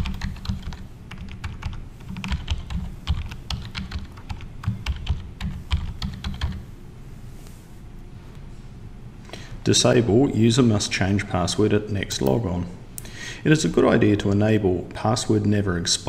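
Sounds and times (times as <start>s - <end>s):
typing on computer keyboard: 0.0s - 6.6s.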